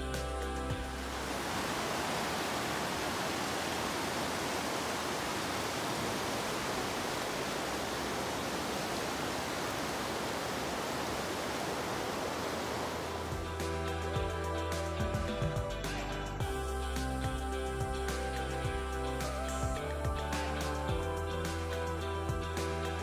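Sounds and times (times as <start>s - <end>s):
river rushing over rocks: 0.1s - 14.1s.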